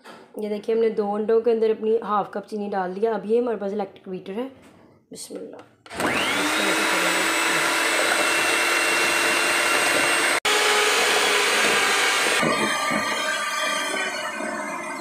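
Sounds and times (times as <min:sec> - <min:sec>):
electric hand mixer whining: 0:05.9 - 0:15.0.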